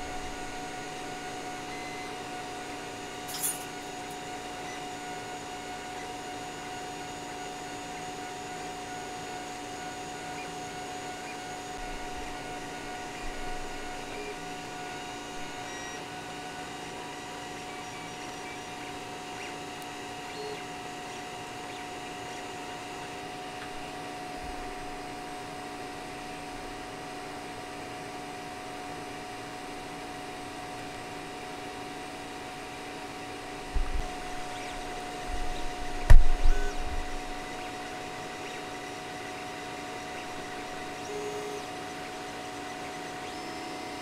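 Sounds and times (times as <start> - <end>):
stepper motor tones: 0.0 - 26.5, 29.8 - 44.0
fan hum with whine: 0.0 - 44.0.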